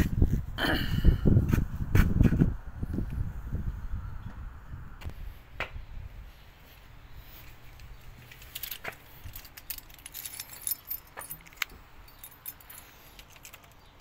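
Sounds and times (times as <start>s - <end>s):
keys jangling: 8.2s - 14.0s.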